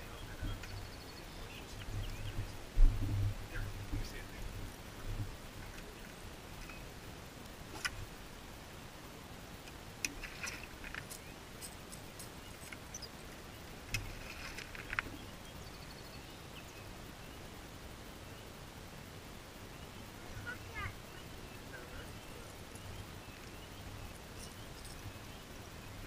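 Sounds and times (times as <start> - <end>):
faint high chirps: 19.7 - 26.0.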